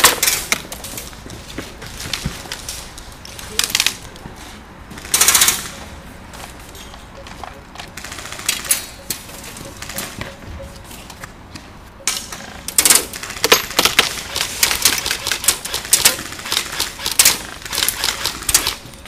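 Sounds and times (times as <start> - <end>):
airsoft rifles firing bursts: 8.0 - 8.7, 12.8 - 18.8.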